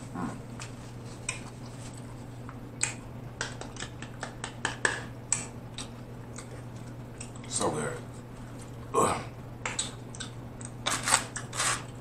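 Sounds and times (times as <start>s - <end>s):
steady low hum: 0.0s - 12.0s
wet chewing and lip smacking: 5.3s - 7.5s, 9.7s - 11.5s.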